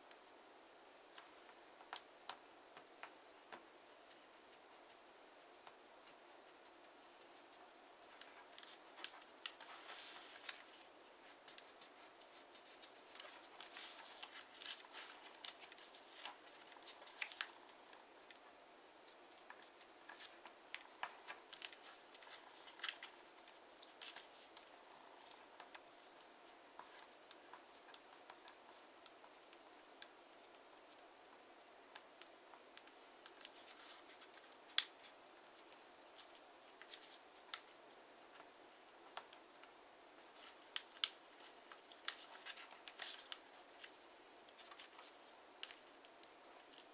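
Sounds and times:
paper rustling and crackling: 6.0s - 18.4s, 19.0s - 26.2s, 32.8s - 39.6s, 40.2s - 46.9s.

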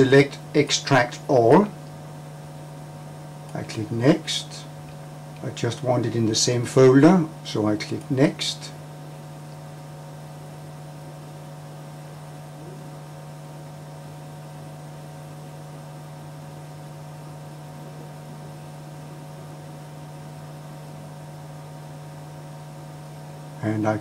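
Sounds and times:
electrical hum: 0.0s - 24.0s.

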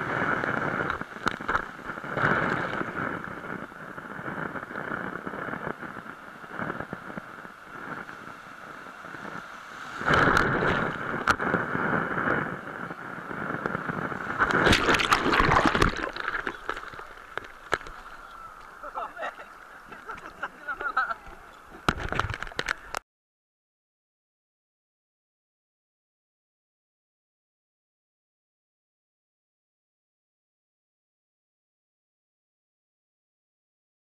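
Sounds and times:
sea surf washing: 0.0s - 23.0s.

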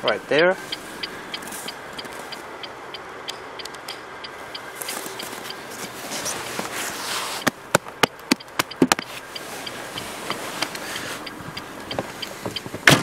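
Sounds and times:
faint regular ticking: 0.0s - 5.9s, 7.4s - 12.9s
sharp clicks and knocks: 7.4s - 13.0s.

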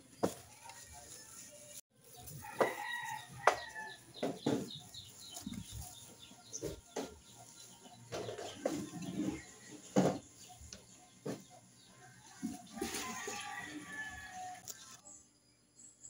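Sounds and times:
rooster crowing: 2.4s - 4.1s, 12.0s - 14.6s.

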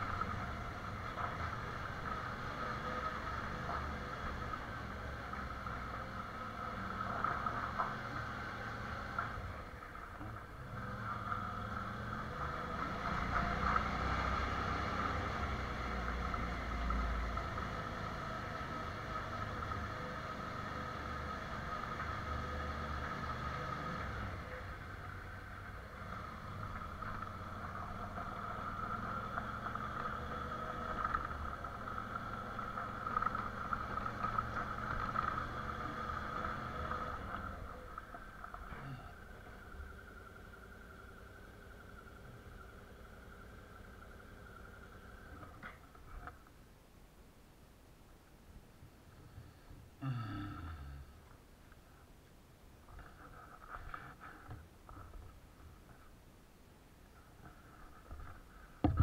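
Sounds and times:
motorcycle riding on gravel: 0.0s - 46.6s.

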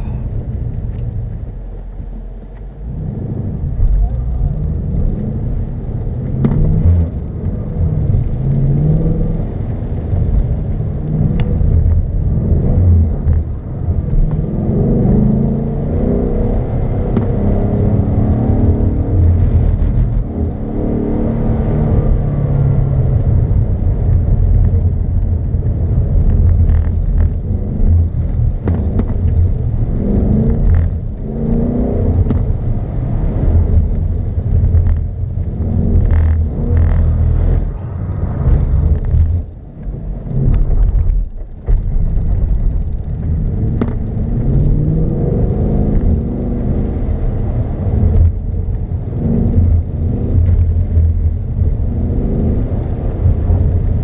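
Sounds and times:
car engine revving hard: 14.1s - 23.2s, 26.5s - 39.5s, 43.4s - 48.4s, 49.0s - 54.0s.

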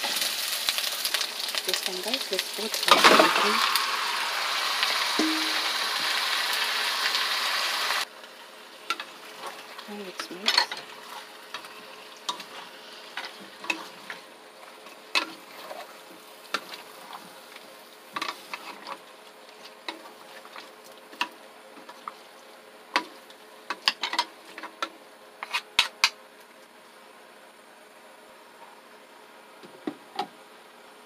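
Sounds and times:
soft sizzle: 0.0s - 27.6s
wooden utensils knocking on pan: 5.2s - 5.7s.

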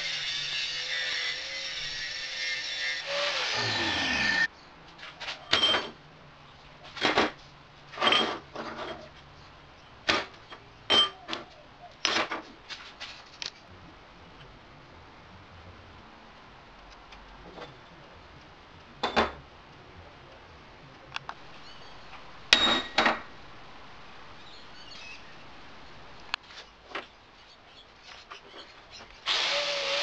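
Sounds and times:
power grinder on metal: 0.0s - 4.5s, 29.3s - 30.0s.

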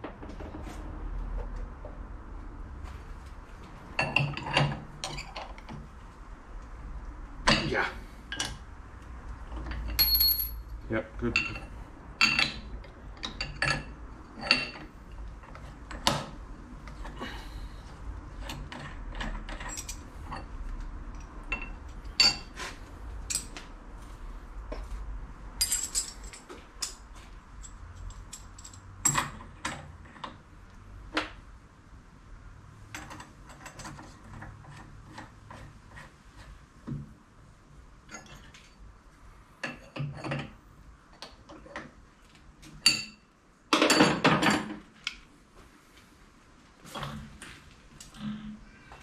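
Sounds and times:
metal tools clinking and knocking: 9.6s - 10.6s, 11.3s - 14.9s, 18.4s - 20.5s, 21.5s - 22.6s, 25.6s - 27.0s.

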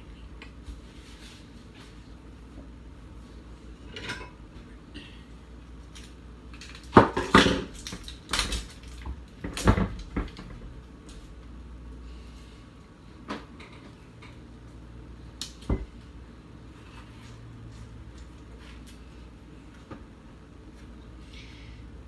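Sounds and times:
dishes and cutlery clattering: 3.9s - 4.4s.

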